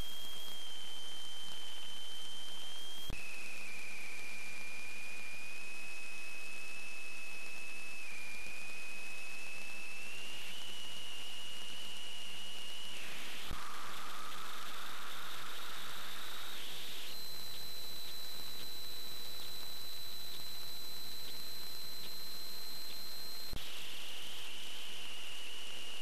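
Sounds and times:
high-pitched whine: 0:00.0 - 0:26.0
steady electronic hiss: 0:12.9 - 0:22.9.

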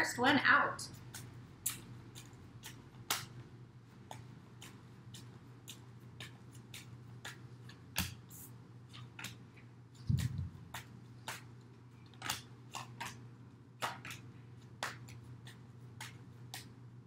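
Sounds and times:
cards clicking on a wooden table: 0:12.1 - 0:13.2.

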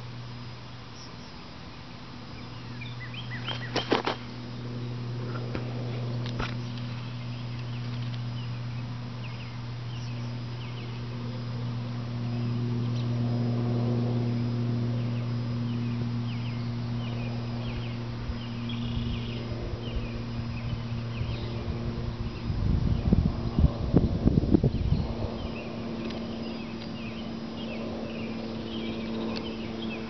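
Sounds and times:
steady low hum: 0:00.0 - 0:30.0
low rumbling: 0:02.3 - 0:30.0.

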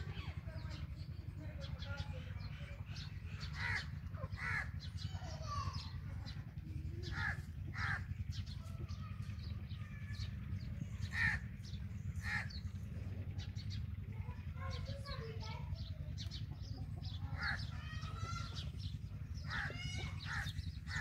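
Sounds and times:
crows cawing: 0:03.4 - 0:04.8, 0:07.0 - 0:08.1, 0:11.0 - 0:12.6, 0:17.4 - 0:18.6, 0:19.4 - 0:21.0.

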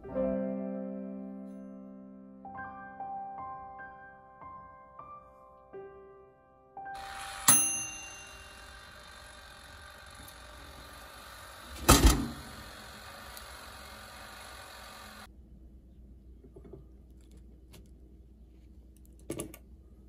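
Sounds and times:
sharp ringing strike: 0:07.5 - 0:08.9.

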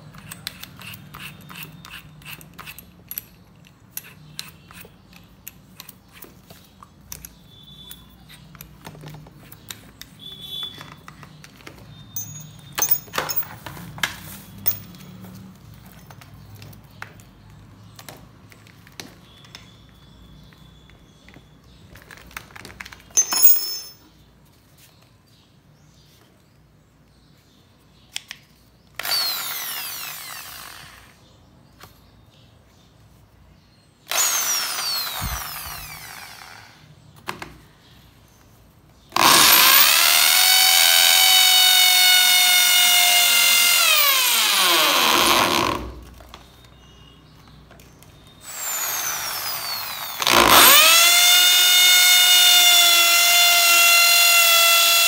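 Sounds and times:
drill bit drilling into brick: 0:29.0 - 0:31.2, 0:34.1 - 0:36.8, 0:39.2 - 0:46.0, 0:48.4 - 0:55.0
impact drill whining: 0:29.0 - 0:31.2, 0:34.1 - 0:36.8, 0:39.2 - 0:46.0, 0:48.4 - 0:55.0.

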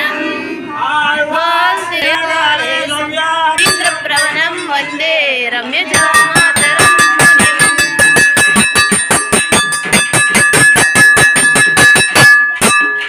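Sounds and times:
bell rung rapidly: 0:03.6 - 0:05.1, 0:05.9 - 0:13.0.

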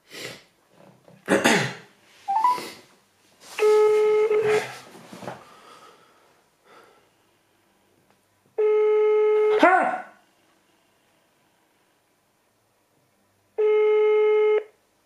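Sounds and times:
telephone ringback tone: 0:02.3 - 0:02.7, 0:03.6 - 0:04.6, 0:08.6 - 0:09.5, 0:13.6 - 0:14.7.

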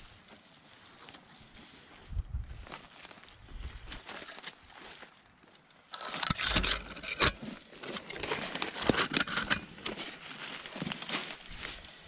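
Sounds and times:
footsteps crunching on dry leaves: 0:00.0 - 0:05.9, 0:09.6 - 0:12.0
branches rustling and scraping: 0:00.0 - 0:12.0.

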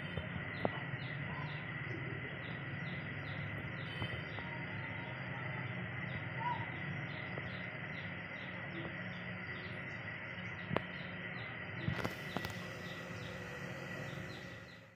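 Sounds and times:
outdoor hiss: 0:00.0 - 0:14.9
insect chirping: 0:00.2 - 0:14.9.

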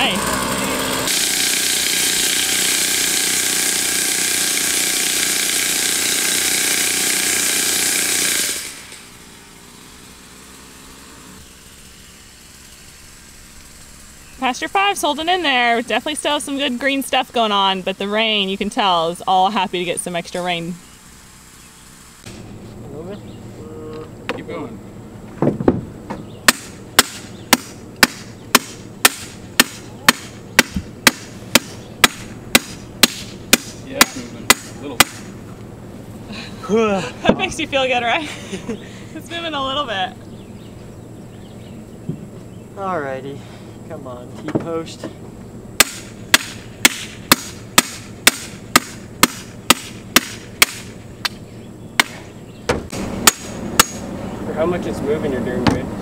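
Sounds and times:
hammer striking metal post: 0:26.5 - 0:35.3, 0:45.8 - 0:50.9, 0:52.8 - 0:54.1.

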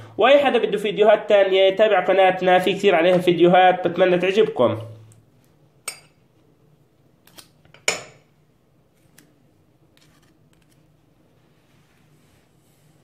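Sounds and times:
metal spoons clinking glass bowl: 0:05.8 - 0:06.2.

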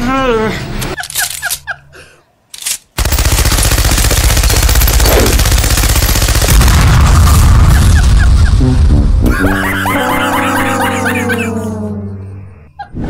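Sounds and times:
machine gun burst: 0:03.0 - 0:08.3.

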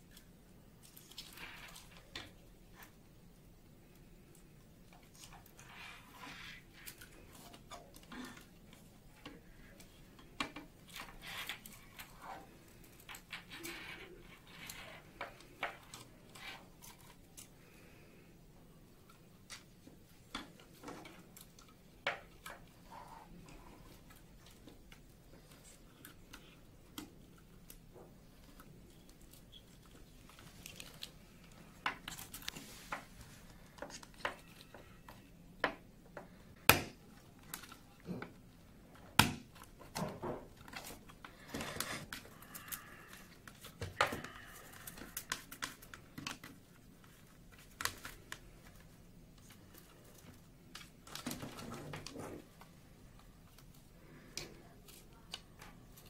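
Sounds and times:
plastic parts clicking and rustling: 0:18.9 - 0:56.0.

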